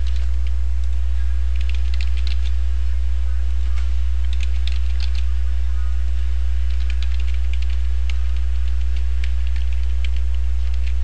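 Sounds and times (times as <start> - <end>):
computer keyboard typing: 0.0 - 2.6, 4.2 - 5.4, 6.6 - 11.0
steady low hum: 0.0 - 11.0.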